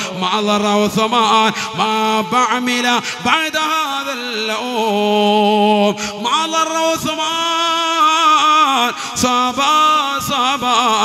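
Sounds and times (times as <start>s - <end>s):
man singing: 0.0s - 11.0s.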